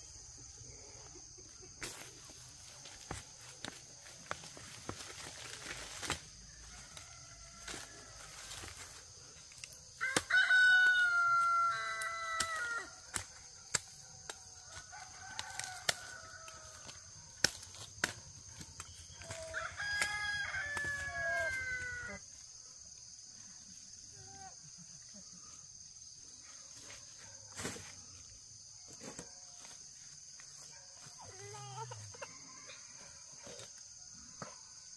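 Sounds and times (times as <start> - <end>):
rooster crowing: 6.5 - 8.6, 10.0 - 13.0, 14.6 - 17.0, 19.2 - 22.2.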